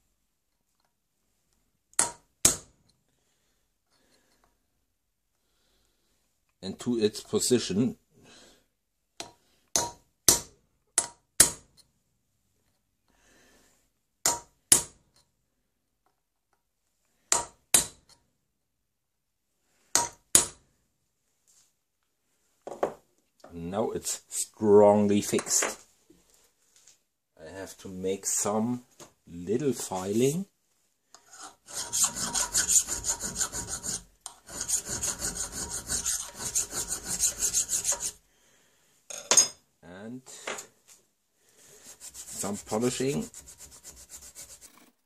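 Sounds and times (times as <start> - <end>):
file rasping on steel: 31.2 - 38.2, 41.8 - 45.0.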